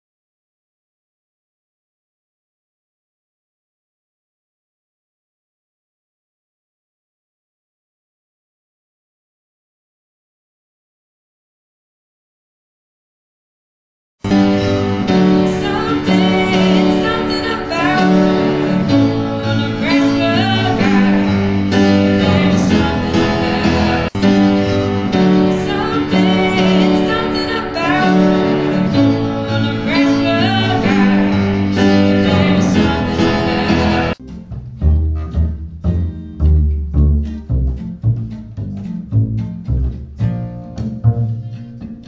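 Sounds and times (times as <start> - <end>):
upright piano: 14.2 - 34.2
acoustic guitar: 14.2 - 42.0
woman singing: 15.2 - 24.2, 25.3 - 34.2.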